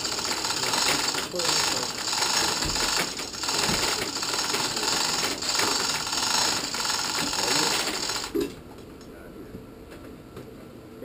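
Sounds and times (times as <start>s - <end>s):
power tool rapid chatter: 0.0s - 8.5s.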